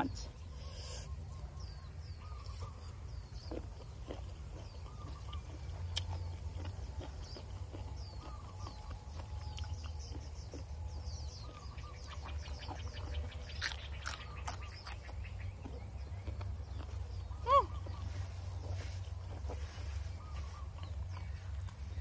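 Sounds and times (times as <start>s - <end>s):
low steady rumble: 0.0s - 22.0s
small birds chirping: 0.0s - 22.0s
chewing raw vegetables: 0.8s - 22.0s.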